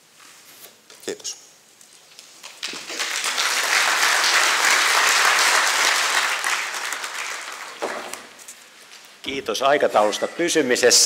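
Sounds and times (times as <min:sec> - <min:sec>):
audience applauding: 0:02.4 - 0:08.4.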